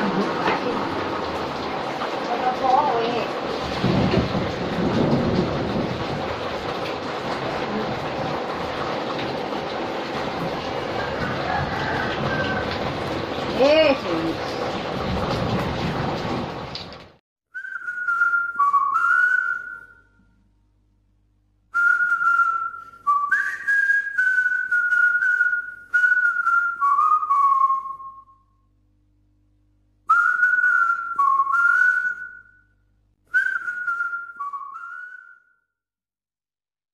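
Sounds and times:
person whistling a tune: 17.5 - 20.2, 21.7 - 28.4, 30.1 - 32.7, 33.3 - 35.7.

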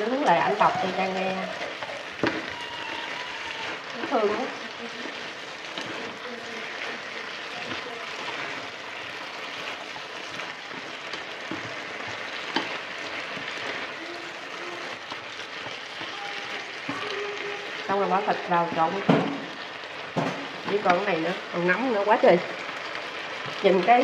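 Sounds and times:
vegetables sizzling in a frying pan: 0.0 - 24.0
utensils knocking against pan: 10.7 - 13.6, 18.7 - 19.5, 20.1 - 21.1.

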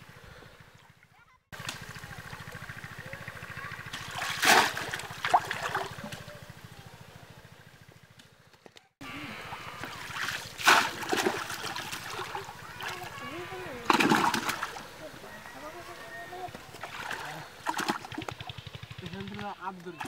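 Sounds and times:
muddy water sloshing: 0.7 - 6.5, 9.0 - 20.0
sharp splashes: 3.9 - 6.3, 9.3 - 15.0, 16.7 - 18.6.

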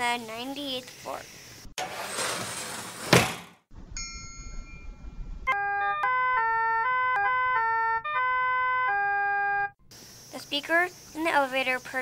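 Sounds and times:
sharp thunk: 3.0 - 3.6
elevator bell ding: 3.9 - 5.2.

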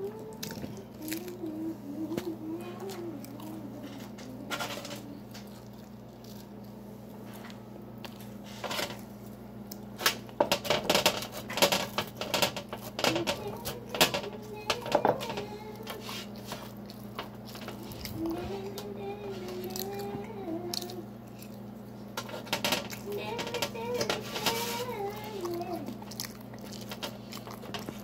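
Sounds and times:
low electrical hum: 0.0 - 28.0
fork scraping metal baking sheet: 23.5 - 25.0.

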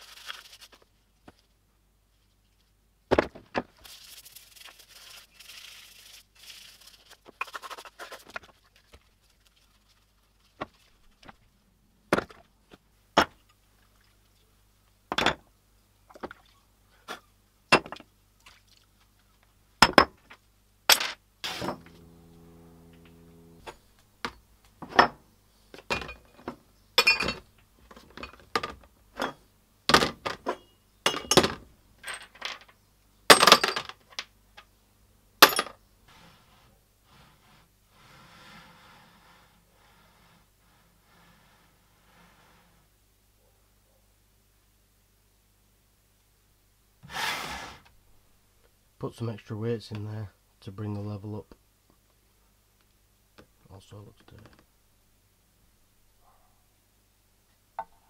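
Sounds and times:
scrubbing rub: 3.8 - 11.3
short low buzz: 21.4 - 24.0.

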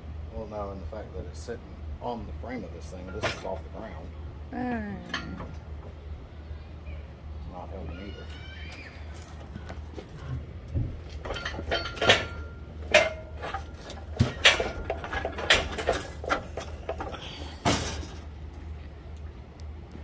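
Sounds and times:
steady low hum: 0.0 - 20.0
metallic clinks and rattles: 11.2 - 17.2.

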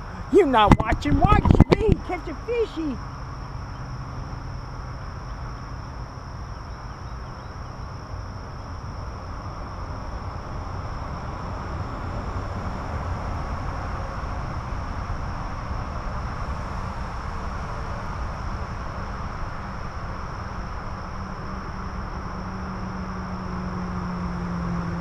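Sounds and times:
wind on microphone: 0.0 - 2.6.

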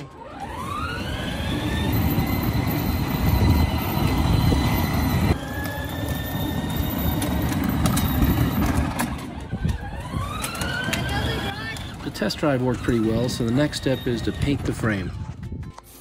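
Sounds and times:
electric motor whine: 0.0 - 11.7
wheels rumbling on pavement: 0.0 - 16.0.

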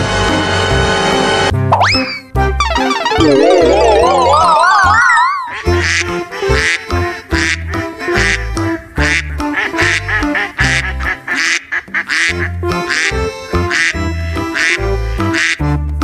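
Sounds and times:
duck quacking: 5.5 - 15.7.

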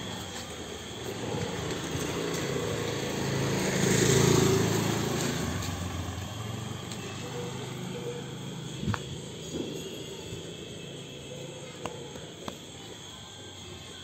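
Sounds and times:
passing vehicle engine: 0.8 - 11.0.

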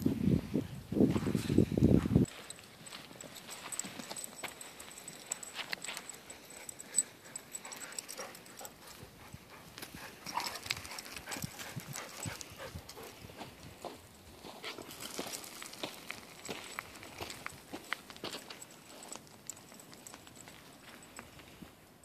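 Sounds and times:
footsteps crunching on gravel: 1.0 - 6.2, 13.0 - 21.7.

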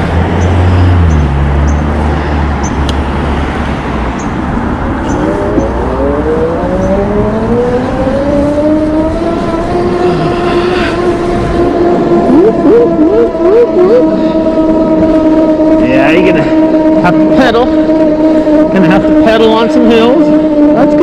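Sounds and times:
electric bike motor whining: 0.0 - 21.0
wind rushing over microphone: 0.0 - 21.0.

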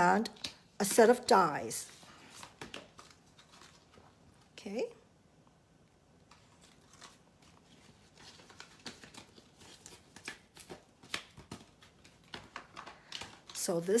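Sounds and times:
plastic sleeve rustling and crinkling: 1.8 - 4.6, 6.2 - 14.0.

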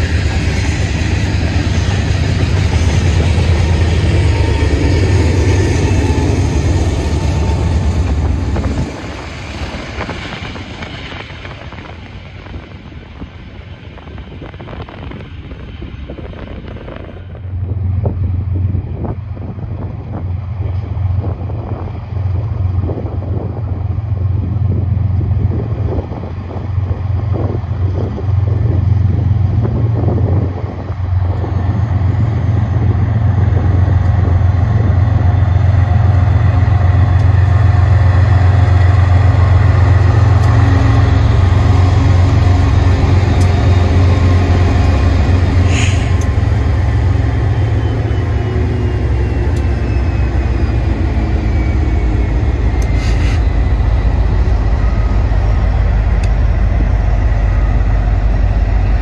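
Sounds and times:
locomotive engine rumble: 0.0 - 59.0
brief high squeaks: 52.9 - 53.5.

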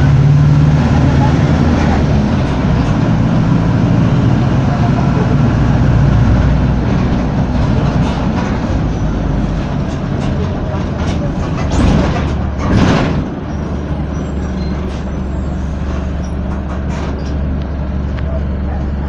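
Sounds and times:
bus diesel engine running: 0.0 - 19.0
road rumble: 0.0 - 19.0
knocks from bus body: 9.7 - 13.5.

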